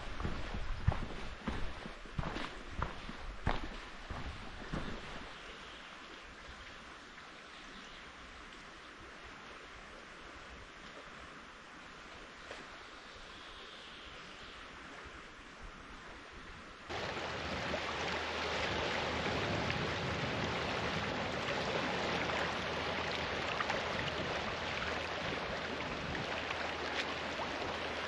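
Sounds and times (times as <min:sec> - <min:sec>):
faint outdoor hiss: 0:00.0 - 0:28.0
wind: 0:00.0 - 0:28.0
small waves lapping on rocks: 0:16.9 - 0:28.0.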